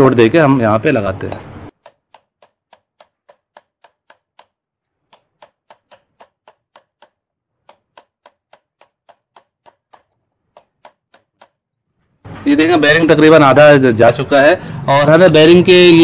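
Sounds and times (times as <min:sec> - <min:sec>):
hammer tapping on steel tube: 0:01.7 - 0:11.6.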